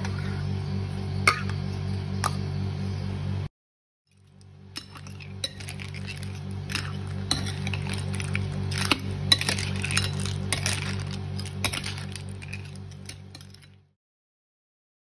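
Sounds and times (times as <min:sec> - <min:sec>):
metal spoon clinking on ceramic bowl: 0:04.8 - 0:08.0.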